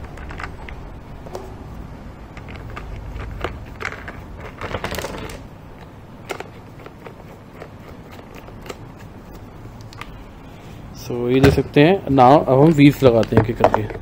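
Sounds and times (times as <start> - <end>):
plastic toy parts clicking and rattling: 0.0 - 0.8, 2.3 - 9.1.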